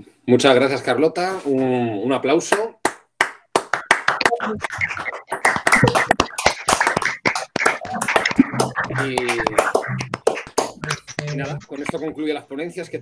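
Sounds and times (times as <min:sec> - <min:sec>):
people clapping: 0:02.5 - 0:12.1.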